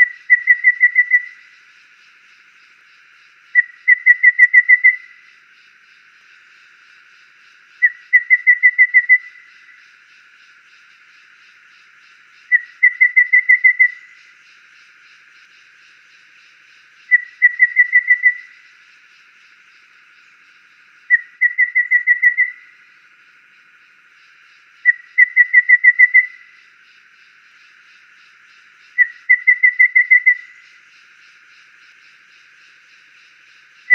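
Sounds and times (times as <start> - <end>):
bird whistling piping notes: 0.0 - 1.5, 3.6 - 5.2, 7.8 - 9.7, 12.5 - 14.2, 17.1 - 18.7, 21.1 - 22.8, 24.8 - 26.6, 29.0 - 30.8.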